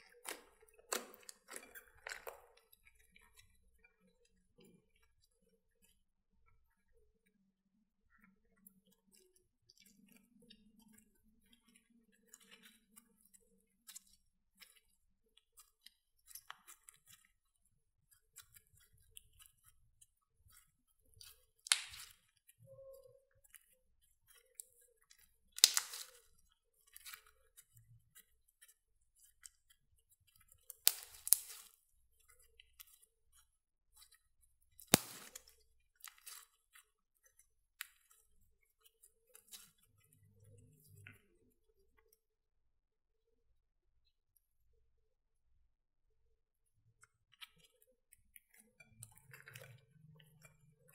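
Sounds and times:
slime sticky clicks and crackles: 0.1s - 3.5s, 18.1s - 22.4s, 23.4s - 27.7s, 28.6s - 34.2s, 34.8s - 41.2s.

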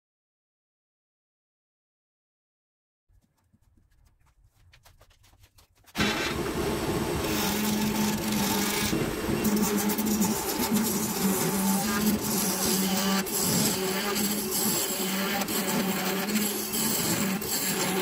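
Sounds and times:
gouge scraping spinning wood: 3.1s - 18.0s
lathe motor hum: 6.0s - 18.0s.

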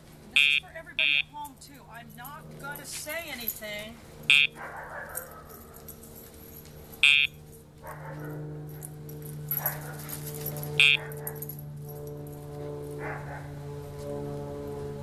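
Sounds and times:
short electronic buzzes: 0.4s - 1.2s, 4.2s - 4.6s, 7.0s - 7.4s, 10.6s - 11.0s.

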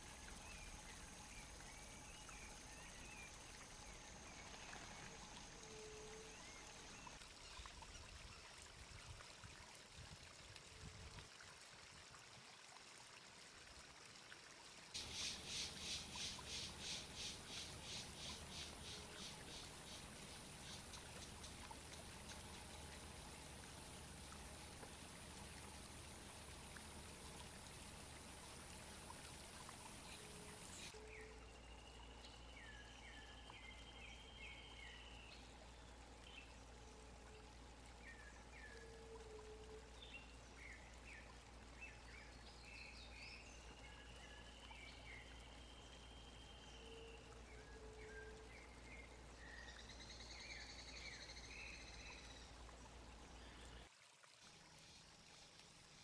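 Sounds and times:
steady hiss: 15.0s - 31.0s.

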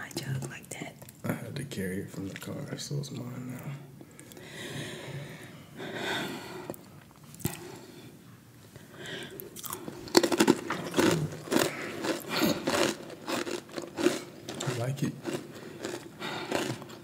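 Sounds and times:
crunchy chewing of snack: 9.3s - 17.0s.

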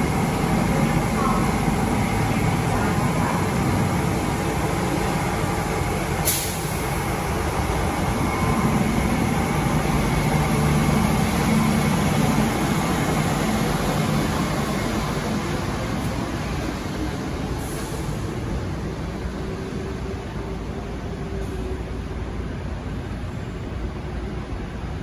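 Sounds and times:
train motors and tyres running: 0.0s - 25.0s
air hissing: 6.2s - 6.9s.

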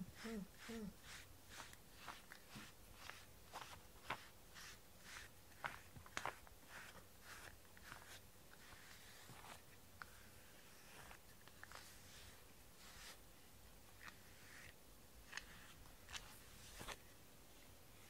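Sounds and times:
brush swishing through fur: 0.0s - 17.1s.

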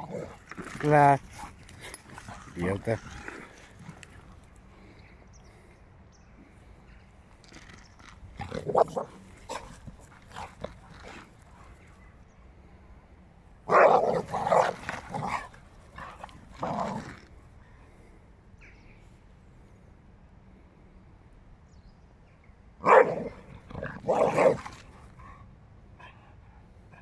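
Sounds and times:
dogs barking and growling: 0.0s - 4.2s, 8.4s - 11.8s, 13.7s - 17.3s, 22.8s - 25.2s.

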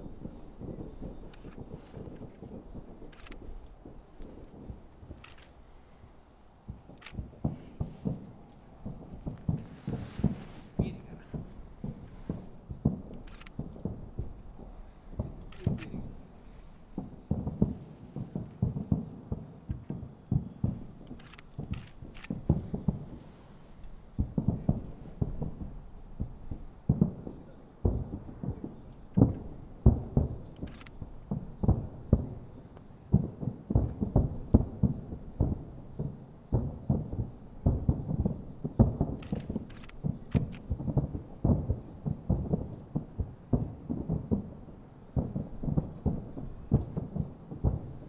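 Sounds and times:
distant fireworks booming: 0.0s - 48.0s.

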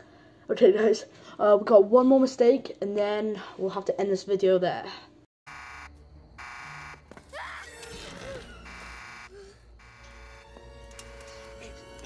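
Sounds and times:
electric fence alarm buzzing: 5.5s - 7.2s, 8.4s - 12.0s
person shouting: 7.3s - 8.5s.

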